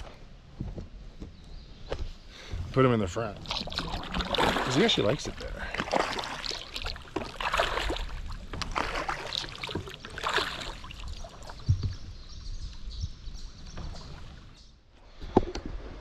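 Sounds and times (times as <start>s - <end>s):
paddle splashing through water: 3.2s - 12.1s.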